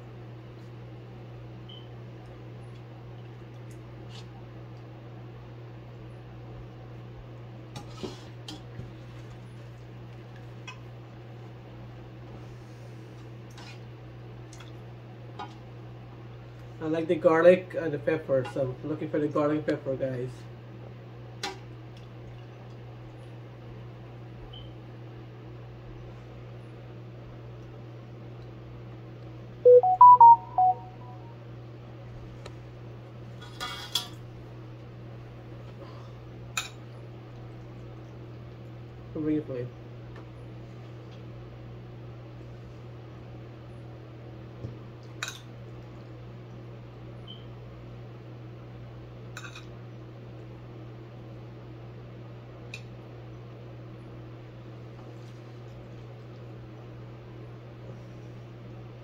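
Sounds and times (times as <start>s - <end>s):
electronic beep jingle: 29.7s - 31.3s.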